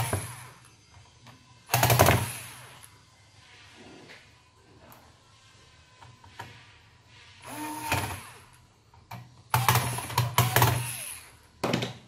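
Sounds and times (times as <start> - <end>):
electric screwdriver running: 7.5 - 8.4, 9.6 - 11.3.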